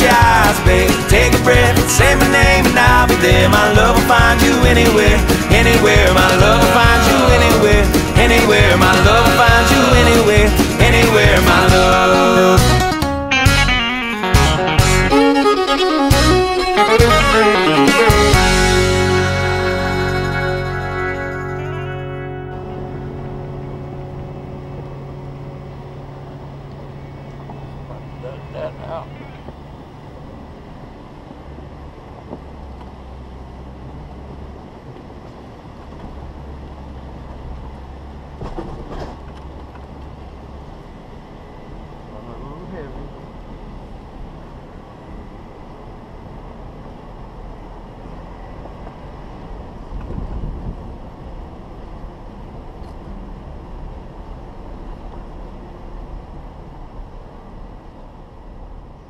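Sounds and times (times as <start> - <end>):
vehicle engine rumble: 0.0 - 59.0
wind on microphone: 49.9 - 51.1.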